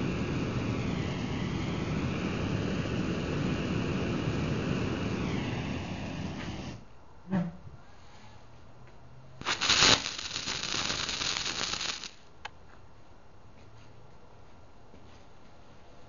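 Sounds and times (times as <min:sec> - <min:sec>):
tracer compound burning with a hiss: 0:00.0 - 0:06.9, 0:09.4 - 0:12.2.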